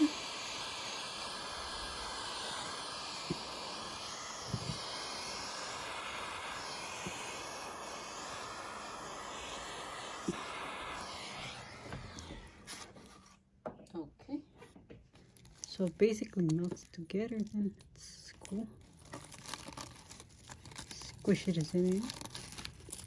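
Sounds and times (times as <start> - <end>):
torch lighter hissing: 0.0 - 13.4, 19.1 - 23.0.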